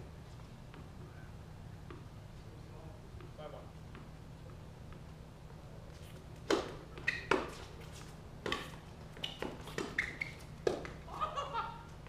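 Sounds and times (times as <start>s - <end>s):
tennis ball struck with racquets: 6.4s - 7.7s, 8.4s - 11.0s
shoe squeaks on court: 6.9s - 10.6s.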